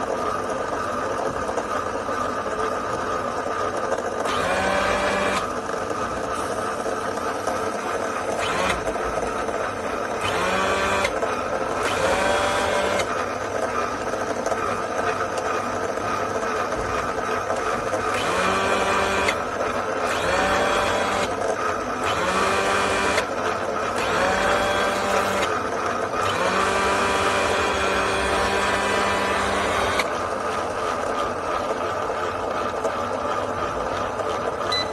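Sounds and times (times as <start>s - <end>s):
machine motors whirring: 4.2s - 13.2s, 16.7s - 23.3s, 23.9s - 30.1s.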